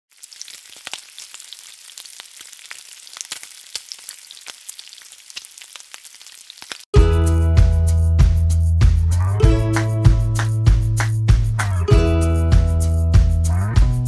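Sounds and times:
food sizzling in hot oil: 0.1s - 6.9s.

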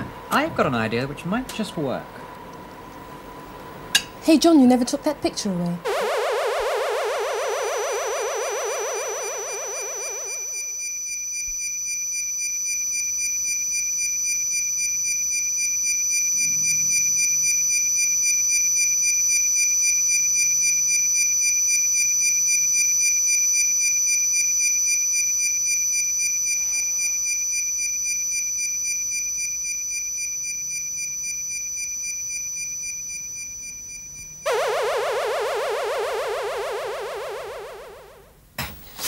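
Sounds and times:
high-pitched electronic chord: 5.9s - 10.6s, 34.5s - 38.3s
warbling electronic sound: 5.9s - 10.7s, 34.5s - 38.3s.

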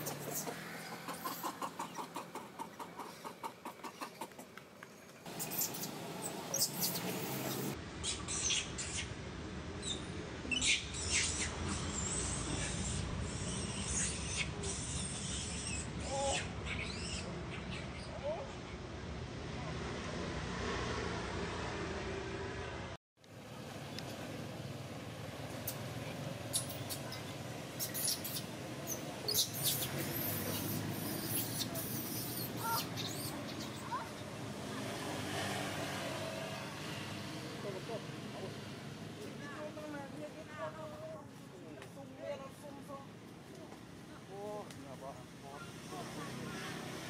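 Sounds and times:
baby monkey squeaking: 5.4s - 9.1s, 9.8s - 18.1s, 26.4s - 34.3s.

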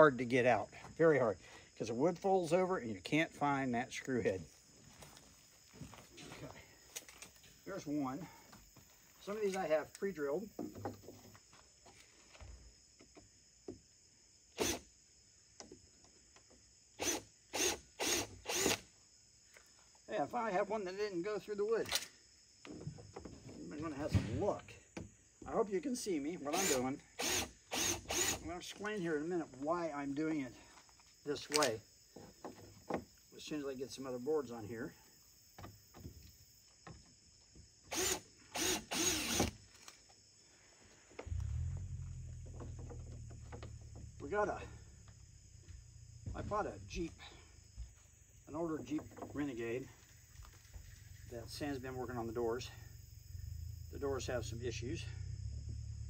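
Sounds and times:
cordless drill whirring: 17.0s - 18.8s, 26.6s - 28.4s, 37.9s - 39.6s
light handling clicks: 31.5s - 31.8s.

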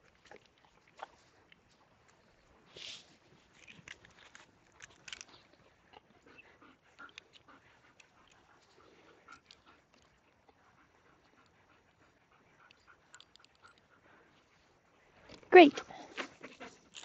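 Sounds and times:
dog mouthing and sniffing: 15.4s - 17.0s.

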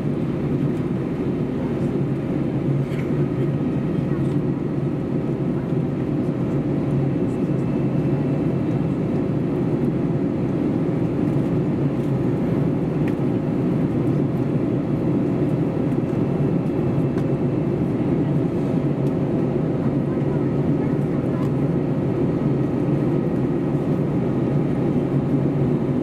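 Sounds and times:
aircraft cabin engine drone: 0.0s - 26.0s.

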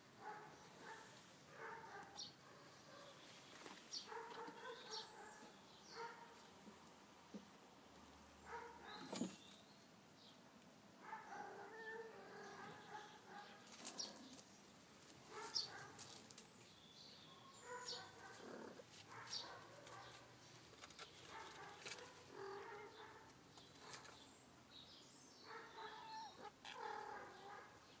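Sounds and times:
soft animal calls: 21.6s - 23.2s, 25.5s - 27.8s.

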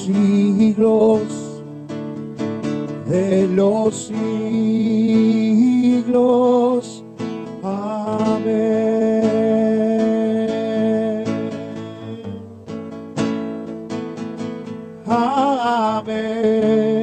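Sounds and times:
person singing: 0.0s - 1.6s, 3.1s - 7.0s, 7.6s - 12.4s, 15.1s - 17.0s
acoustic guitar chords: 0.0s - 17.0s.

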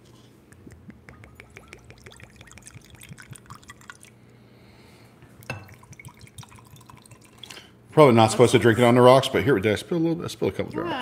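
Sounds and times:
liquid pouring over ice: 1.2s - 4.2s, 5.4s - 7.7s.

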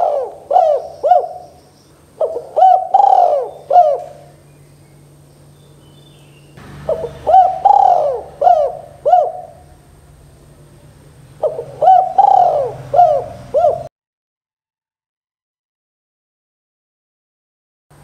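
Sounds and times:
dove cooing: 0.0s - 4.5s, 6.8s - 9.8s, 11.3s - 13.9s.

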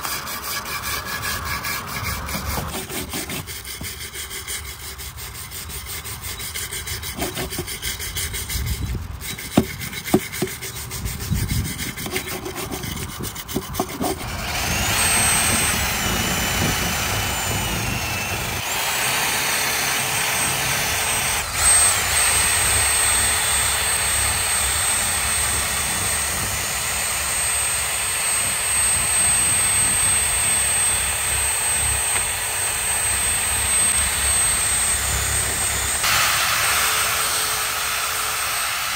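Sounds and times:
hand scraping metal: 0.0s - 18.7s
power tool whining: 0.0s - 38.9s.

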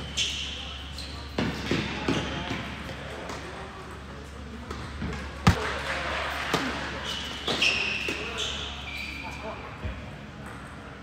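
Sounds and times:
sneakers squeaking: 0.0s - 2.8s, 6.5s - 10.8s
tennis ball hits: 5.4s - 5.7s.

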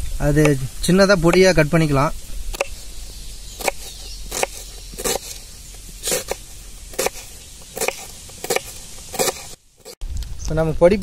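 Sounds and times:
knife chopping on wooden board: 2.5s - 2.8s, 3.6s - 5.4s, 6.0s - 10.0s.

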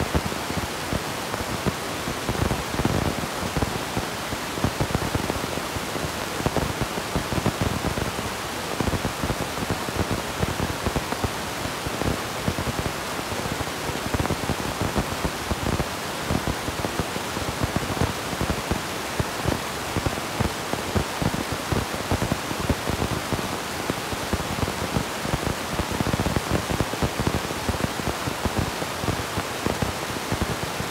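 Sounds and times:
static hiss and crackling: 0.0s - 30.9s.

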